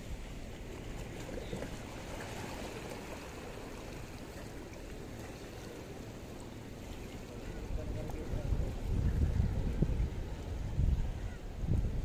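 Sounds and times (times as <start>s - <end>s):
water lapping against rocks: 0.0s - 12.0s
wind rumble on microphone: 6.6s - 12.0s.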